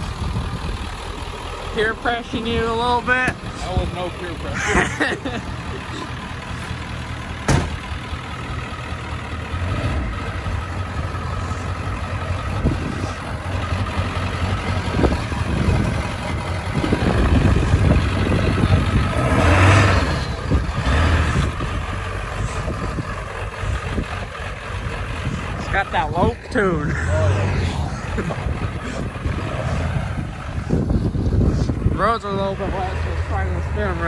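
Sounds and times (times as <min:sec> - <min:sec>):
diesel engine idling with a lope: 0:00.0 - 0:34.0
engine revving: 0:00.0 - 0:34.0
car door slamming: 0:07.4 - 0:07.9.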